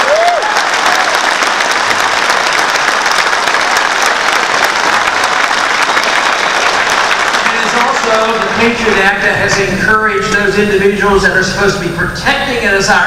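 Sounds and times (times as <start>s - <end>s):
audience applauding: 0.0s - 9.7s.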